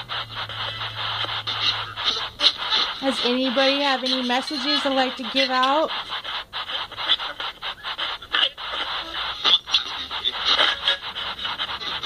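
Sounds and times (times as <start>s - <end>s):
chopped static bursts from phone speaker: 0.0s - 12.0s
person speaking: 0.4s - 12.0s.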